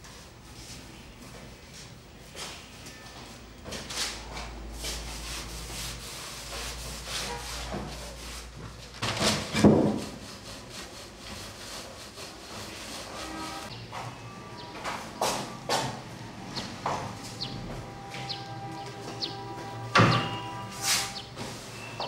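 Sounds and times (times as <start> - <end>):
hand pad rubbing paper: 9.8 - 13.7, 20.6 - 21.9.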